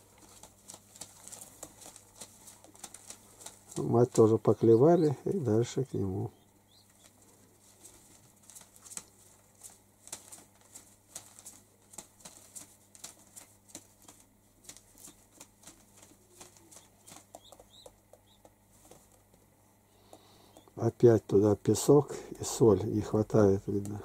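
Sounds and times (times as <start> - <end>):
pigeons pecking and stepping: 0.0 - 21.3.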